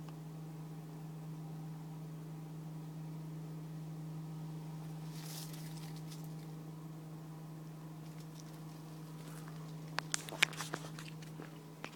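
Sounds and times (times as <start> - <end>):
steady low hum: 0.0 - 11.9
rustling and scratching: 5.0 - 6.6, 8.0 - 11.9.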